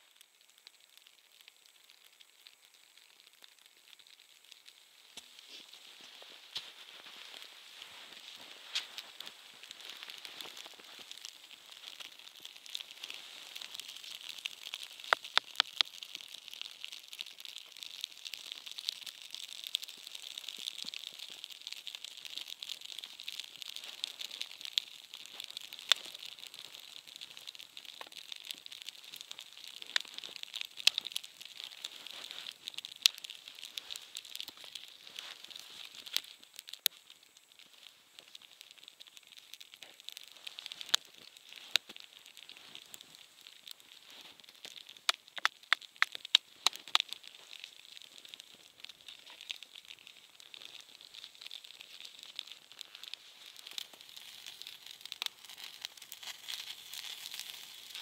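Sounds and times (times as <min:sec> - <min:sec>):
campfire crackling and popping: 0:00.0 - 0:58.0.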